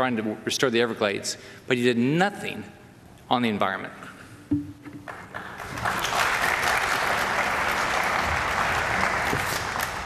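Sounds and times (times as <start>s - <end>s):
audience applauding: 5.0s - 10.0s.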